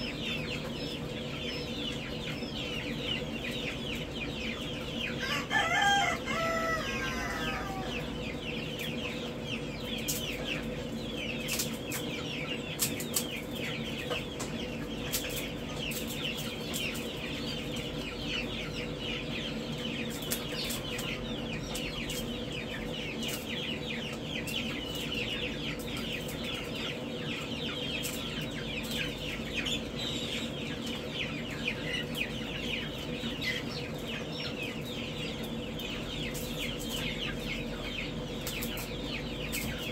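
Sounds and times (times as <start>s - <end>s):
chicks peeping: 0.0s - 39.9s.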